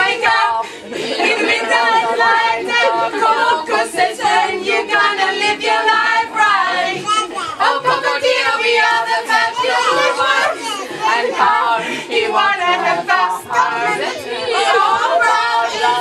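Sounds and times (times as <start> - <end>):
group of voices singing: 0.0 - 16.0.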